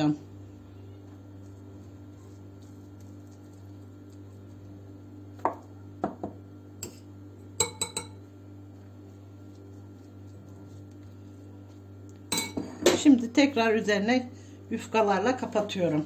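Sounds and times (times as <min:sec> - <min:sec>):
steady low hum: 0:00.0 - 0:16.0
metal spoon tapping glass bowl: 0:07.6 - 0:08.2.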